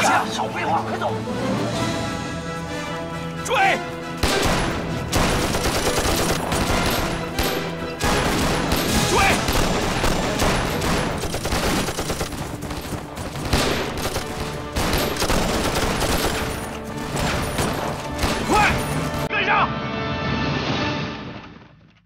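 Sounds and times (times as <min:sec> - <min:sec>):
rifle volley: 0:04.2 - 0:19.2.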